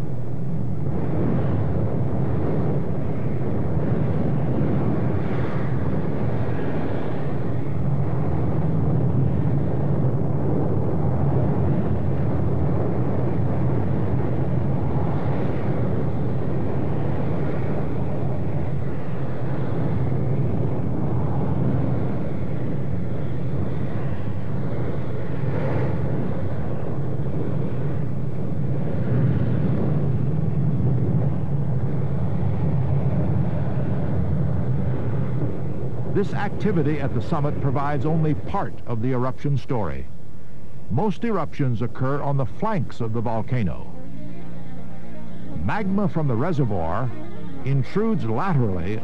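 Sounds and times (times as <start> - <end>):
lava fountains deep rushing: 0.4 - 40.0.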